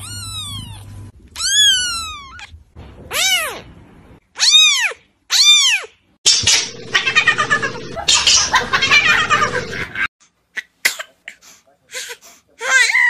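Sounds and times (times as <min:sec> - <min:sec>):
kitten meowing: 0:00.0 - 0:02.5.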